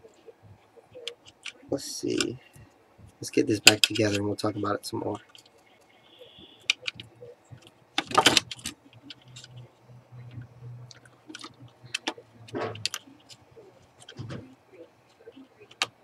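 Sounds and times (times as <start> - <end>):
plastic case clicks and rattles: 8.0 - 8.8.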